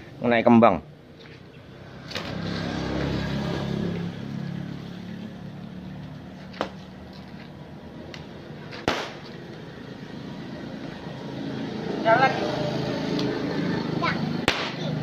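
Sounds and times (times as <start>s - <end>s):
vehicle passing on road: 0.0s - 15.0s
whip crack: 8.8s - 9.3s, 14.4s - 15.0s.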